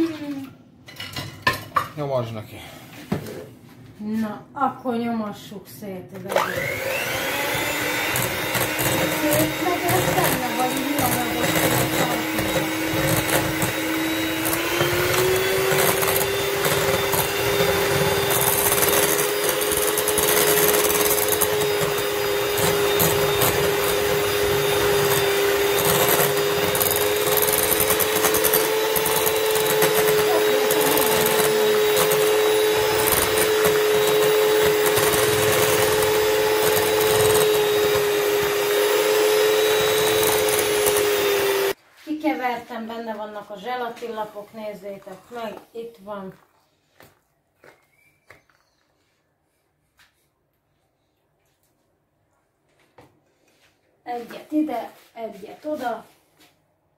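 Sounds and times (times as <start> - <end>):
electric mixer running: 6.2 - 41.8.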